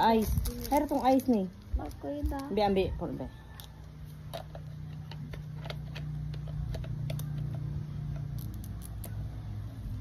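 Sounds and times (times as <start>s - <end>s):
small toy piece clicking: 5.6s - 9.2s.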